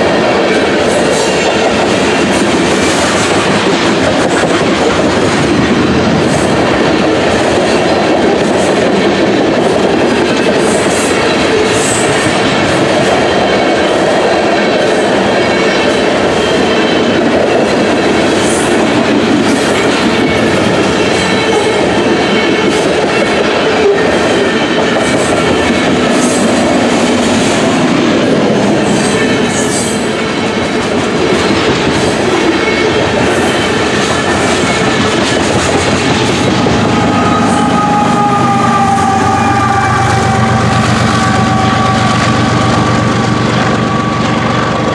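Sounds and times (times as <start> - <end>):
train wheels clicking over rail joints: 0.0 - 44.9.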